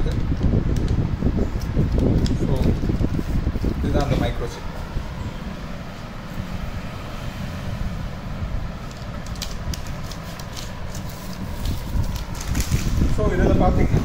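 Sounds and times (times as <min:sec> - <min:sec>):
plastic pouch crinkling: 0:08.7 - 0:13.3.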